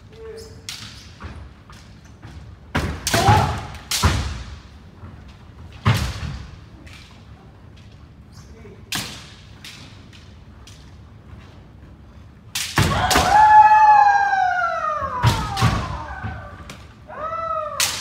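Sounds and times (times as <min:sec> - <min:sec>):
people shouting: 0:03.1 - 0:03.8, 0:12.8 - 0:18.0.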